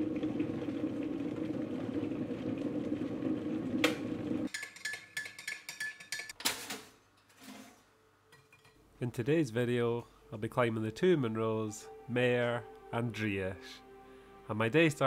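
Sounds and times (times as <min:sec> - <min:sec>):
electric kettle rumbling: 0:00.0 - 0:04.5.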